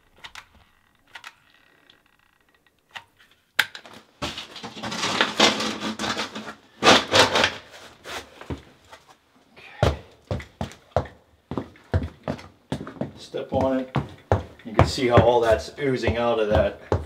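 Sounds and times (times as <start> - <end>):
board scraping and rubbing: 4.2 - 8.4.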